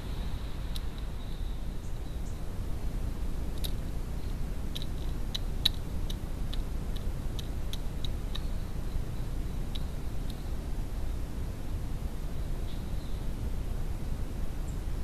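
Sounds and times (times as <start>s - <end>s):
low background noise: 0.0s - 15.0s
pigeon pecking clicks: 3.5s - 8.6s.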